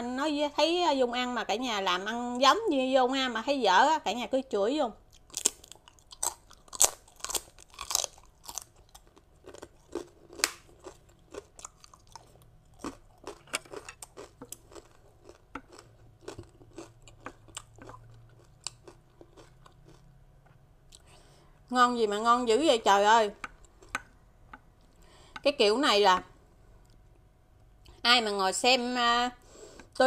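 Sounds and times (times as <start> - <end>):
person crunching rice cracker: 5.1 - 20.1.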